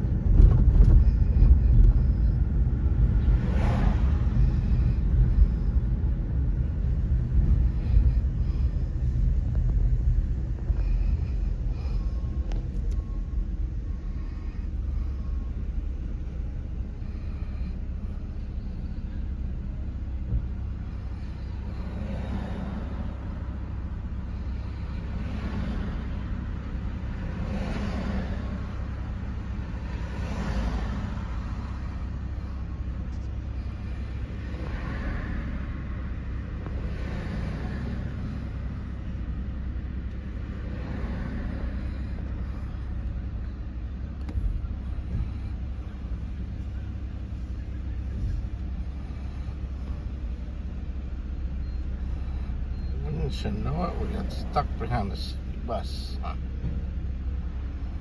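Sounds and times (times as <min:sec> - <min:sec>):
car engine idling: 0:00.0 - 0:58.0
street noise: 0:00.0 - 0:58.0.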